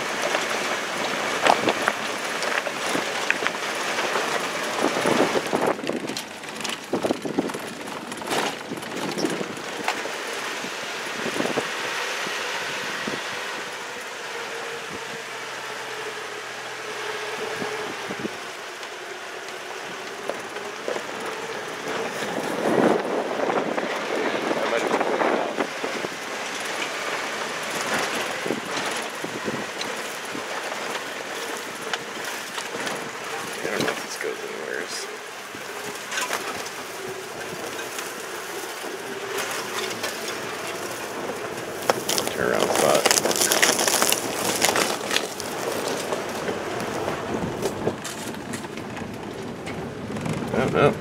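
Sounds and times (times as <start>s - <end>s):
knocks and rattles in cab: 0.0s - 10.1s
rattles and clicks in car: 0.0s - 11.7s, 17.6s - 51.0s
truck engine and tyre noise: 0.0s - 51.0s.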